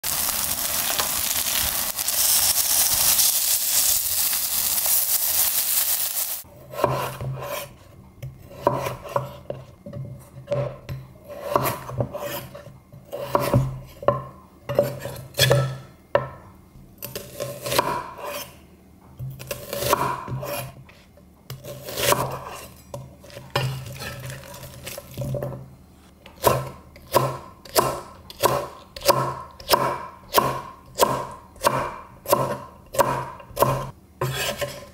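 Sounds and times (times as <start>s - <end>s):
pancakes sizzling in oil: 0.0s - 6.5s
knife cutting on wooden board: 32.4s - 34.9s.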